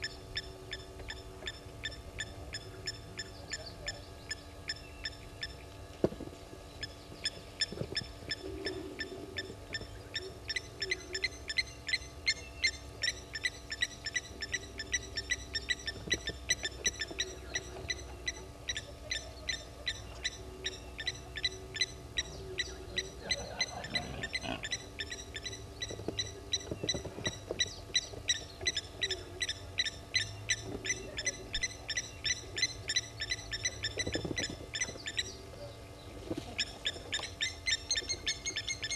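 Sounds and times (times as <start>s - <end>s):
bird low hooting calls: 6.5s - 38.9s.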